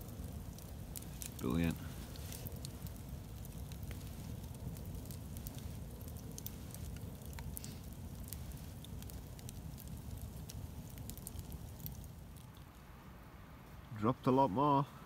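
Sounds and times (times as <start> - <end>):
campfire crackling and popping: 0.0 - 13.0
steady low rumble: 0.0 - 13.4.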